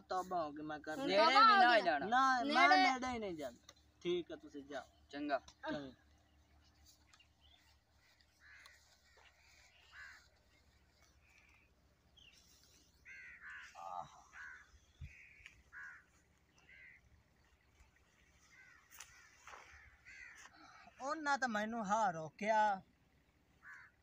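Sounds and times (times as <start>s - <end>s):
crows cawing: 7.6s - 21.4s, 23.5s - 24.0s.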